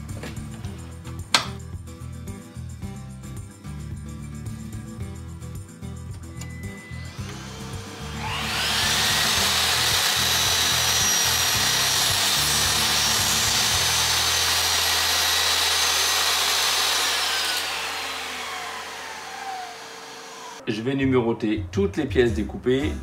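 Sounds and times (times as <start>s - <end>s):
mitre saw motor whining: 6.2s - 20.6s
saw blade cutting wood: 6.7s - 20.6s.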